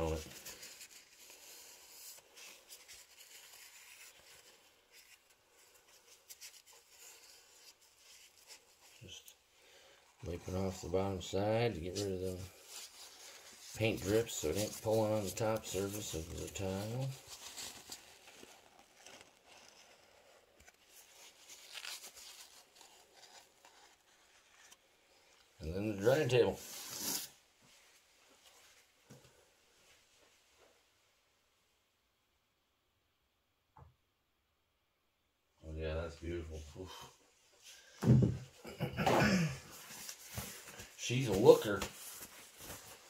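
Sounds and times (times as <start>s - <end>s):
scratchy wiping: 0.0s - 9.4s, 10.2s - 24.8s, 26.6s - 27.3s
faint rubbing: 0.0s - 28.9s.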